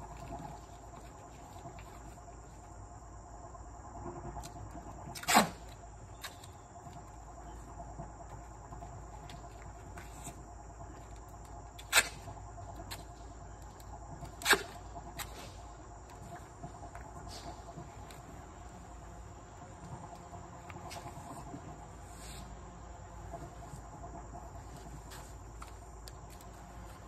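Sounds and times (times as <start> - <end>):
insects chirring: 0.0 - 27.0.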